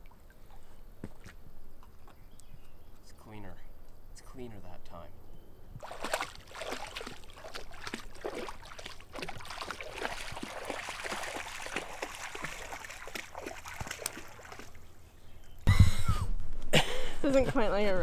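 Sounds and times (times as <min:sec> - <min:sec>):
river water lapping on rocks: 0:05.8 - 0:15.0.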